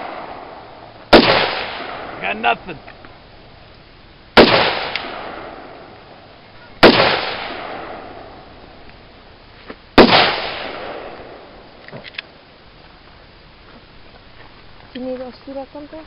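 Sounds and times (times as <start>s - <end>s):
gunshots ringing out: 1.1s - 2.6s, 4.4s - 5.9s, 6.8s - 8.3s, 10.0s - 11.4s.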